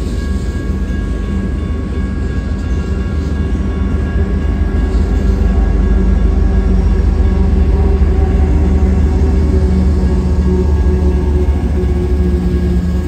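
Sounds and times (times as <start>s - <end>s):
diesel locomotive engine rumble: 0.0s - 13.0s.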